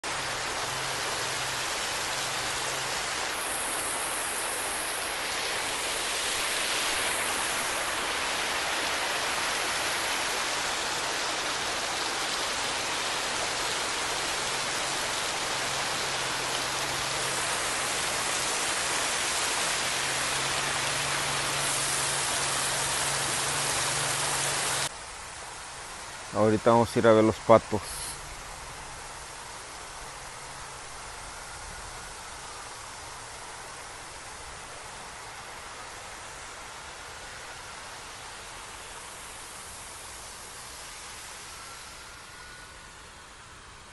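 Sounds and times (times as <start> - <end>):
waterfall splashing into pool: 0.0 - 28.2.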